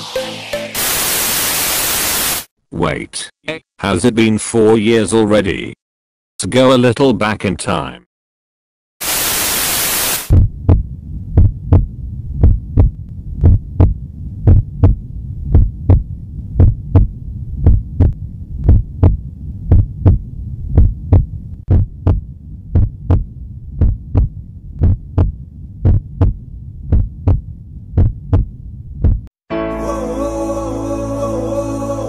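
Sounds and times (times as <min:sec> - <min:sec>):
heartbeat thumps: 0:10.3 - 0:29.3
steady low hum: 0:10.3 - 0:29.3.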